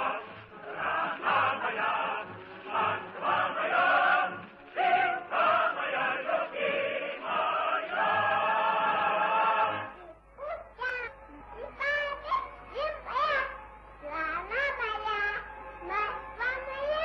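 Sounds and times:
choir singing a march-like song: 0.0 - 10.0.

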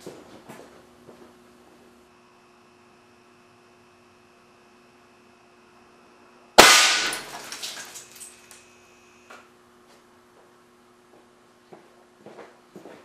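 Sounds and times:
sharp bang on glass: 6.6 - 8.0.

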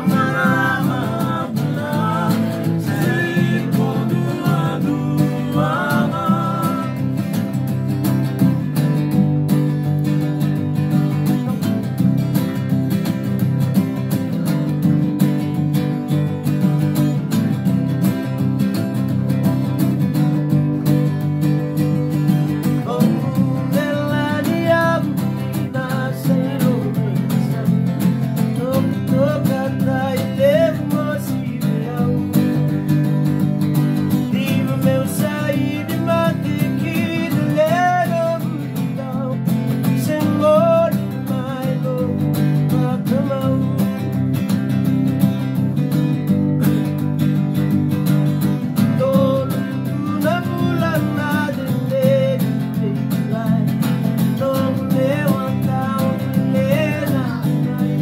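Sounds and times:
man singing: 0.0 - 8.0, 22.6 - 33.2, 34.0 - 44.4, 48.8 - 58.0
acoustic guitar strumming chords: 0.0 - 58.0.

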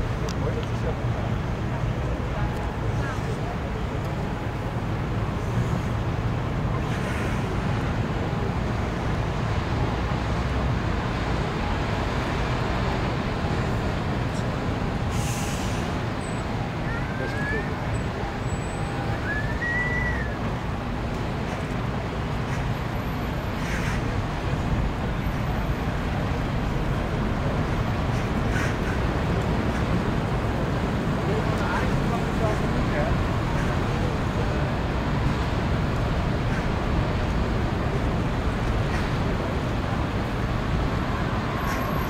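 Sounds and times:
city traffic rumble: 0.0 - 42.0
harbour noise: 0.0 - 42.0
thin whistling tone: 18.6 - 20.4.

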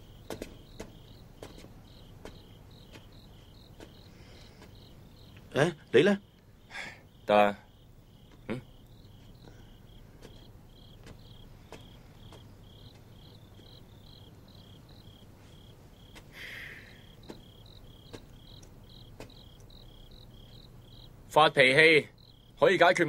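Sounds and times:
soft footsteps: 0.0 - 5.5, 8.1 - 16.3, 17.1 - 20.7
rustling hiss: 0.0 - 20.9
crickets chirping: 0.0 - 23.0.

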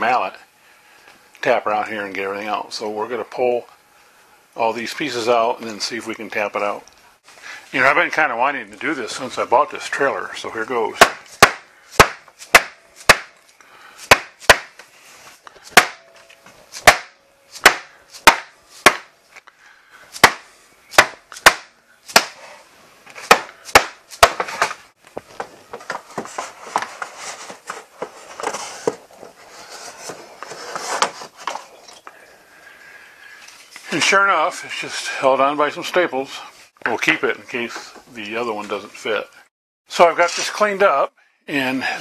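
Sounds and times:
board scraping and rustling: 24.1 - 32.1.

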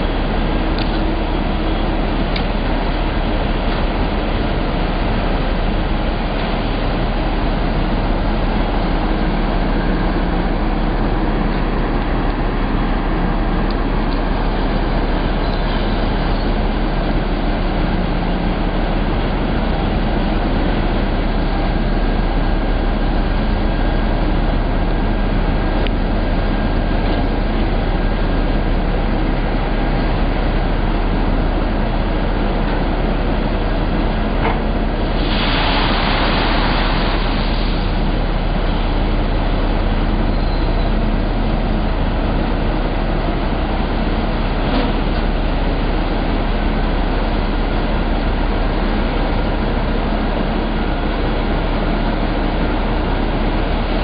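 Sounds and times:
deck crane machinery noise: 0.0 - 54.0.

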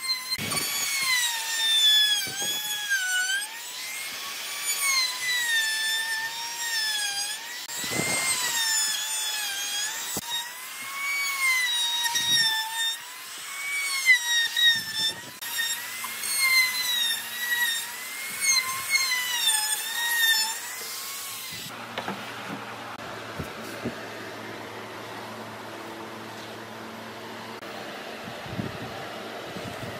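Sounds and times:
trim router whining: 0.0 - 29.9.

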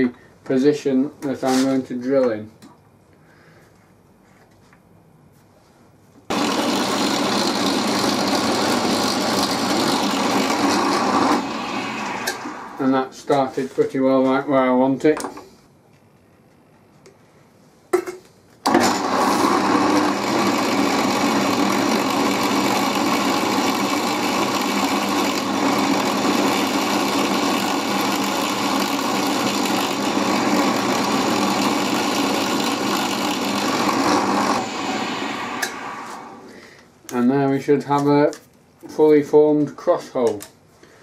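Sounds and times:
drill press motor running: 6.3 - 13.0, 18.7 - 36.6.

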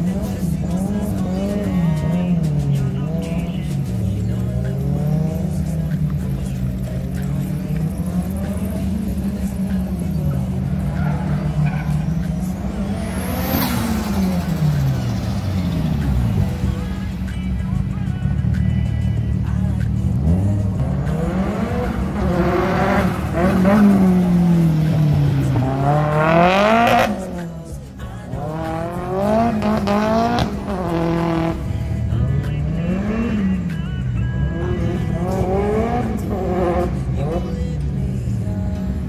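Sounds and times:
car engines revving: 0.0 - 39.0
tyres squealing: 3.2 - 16.8.

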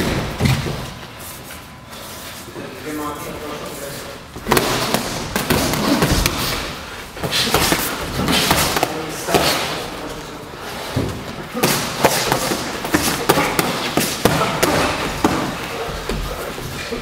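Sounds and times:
boxing gloves thudding: 4.4 - 6.6.

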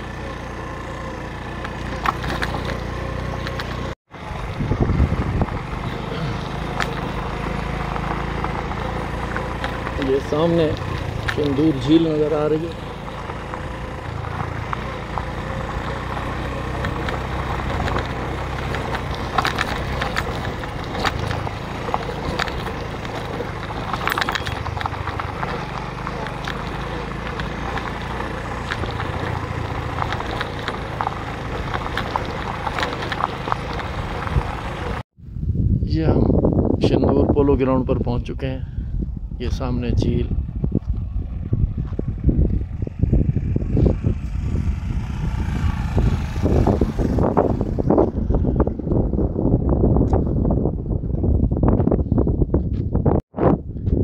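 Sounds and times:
knocks and rattles on rough track: 0.0 - 35.0
stones clicking under tyres: 0.0 - 35.0, 40.4 - 49.1
motorcycle engine running: 0.0 - 35.5, 38.0 - 54.0.

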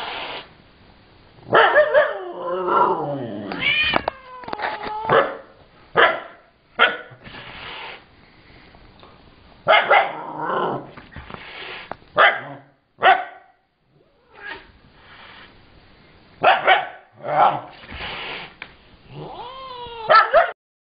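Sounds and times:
dog bark-growl: 1.4 - 3.5, 9.7 - 10.9, 12.2 - 13.5, 16.4 - 17.8, 20.1 - 20.6
dog barking: 1.5 - 2.2, 5.1 - 7.2, 9.7 - 10.2, 12.2 - 13.6, 16.4 - 17.7, 20.1 - 20.6.

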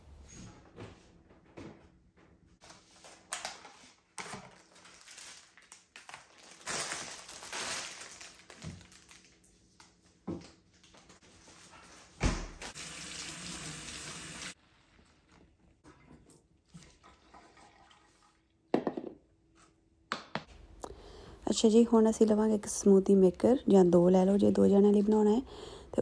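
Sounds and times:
plastic tubs and bags rustling: 2.6 - 9.7.

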